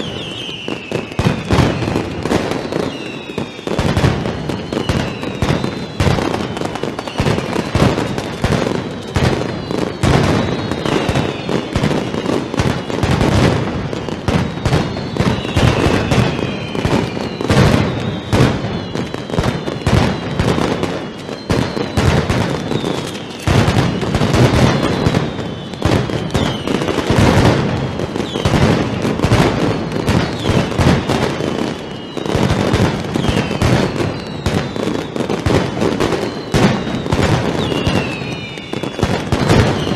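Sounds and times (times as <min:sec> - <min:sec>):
high whistling tones: 0:00.0 - 0:03.8, 0:04.4 - 0:07.7, 0:14.0 - 0:20.4, 0:24.8 - 0:26.9, 0:29.8 - 0:35.3, 0:36.1 - 0:39.9
firecracker barrage: 0:00.0 - 0:39.9.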